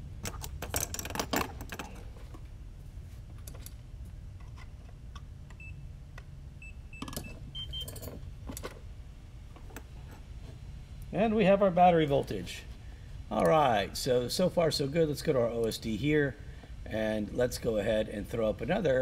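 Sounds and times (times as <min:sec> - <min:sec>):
clicks and rattles of handling parts: 0:00.2 - 0:02.5, 0:03.3 - 0:03.8, 0:07.0 - 0:08.8.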